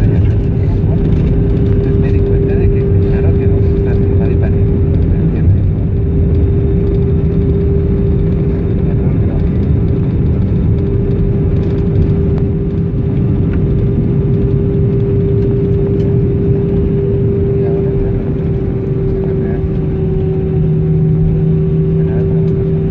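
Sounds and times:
constant hum: 0.0s - 22.9s
jet engines low rumble: 0.0s - 22.9s.

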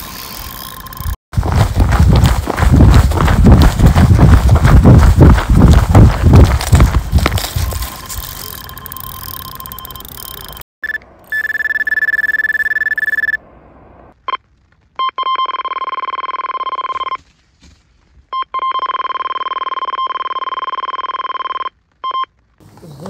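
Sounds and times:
fast low beeps: 4.2s - 13.4s.

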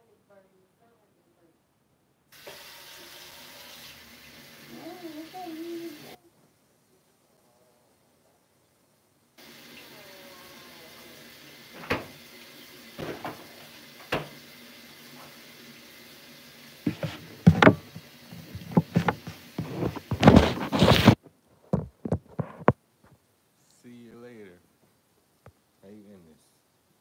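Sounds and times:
loud bumps and rubbing: 16.9s - 21.2s.

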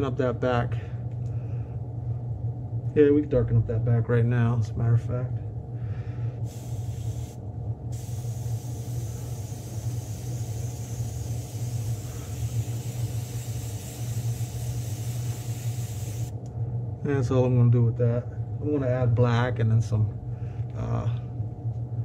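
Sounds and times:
steady low hum: 0.0s - 22.0s
airbrush spraying hiss: 6.4s - 16.4s.

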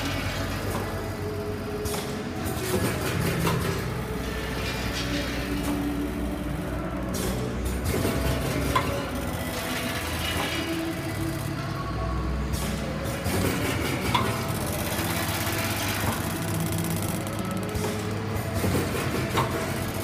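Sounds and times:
machine humming: 0.0s - 20.0s.

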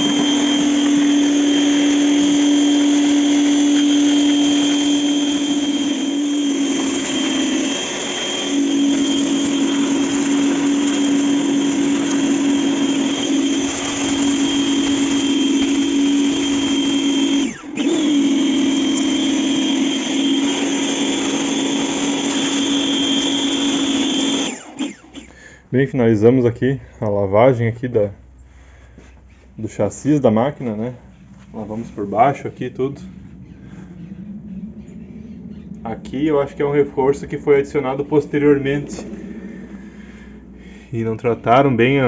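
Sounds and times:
water jet spraying on metal: 0.0s - 22.8s
pressure washer pump humming: 0.0s - 25.8s, 28.4s - 42.0s.

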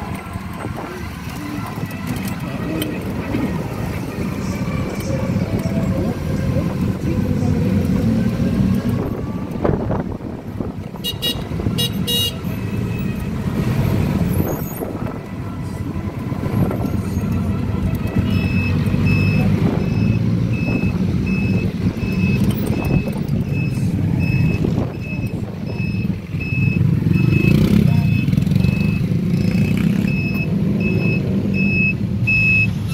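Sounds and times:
street traffic: 0.0s - 32.9s
vehicle reversing beeper: 18.2s - 32.9s.

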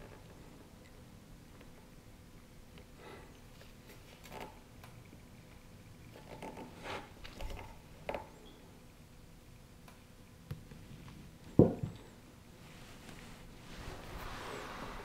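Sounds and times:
soft handling noises: 10.6s - 15.0s.

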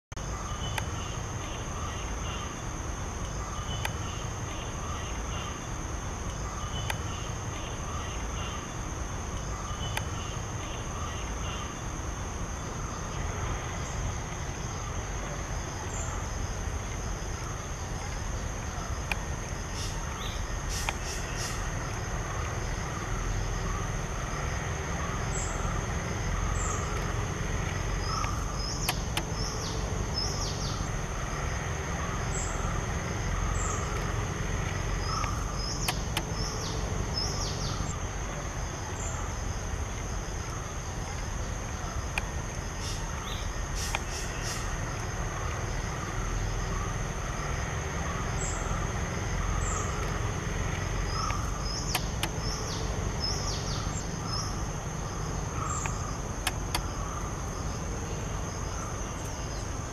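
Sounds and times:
insect drone: 0.1s - 59.9s
bird chirps: 27.8s - 31.0s, 34.9s - 38.0s, 51.0s - 57.2s.

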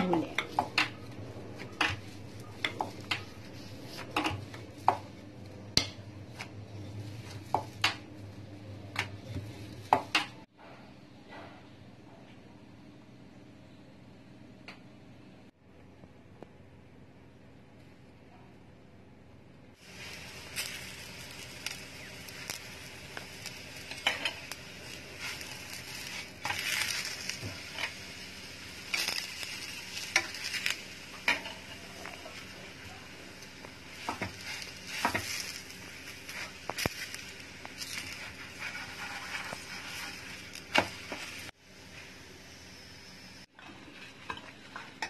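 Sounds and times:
spatula scraping and tapping: 0.3s - 5.2s, 30.0s - 32.2s, 34.0s - 41.5s
flatbread sizzling in oil: 19.8s - 45.0s.

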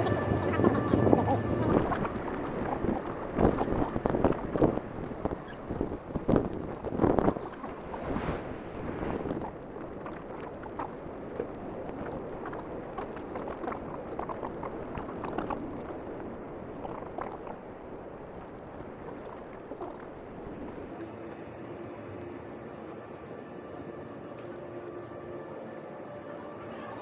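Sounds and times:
wind on microphone: 0.0s - 21.1s.

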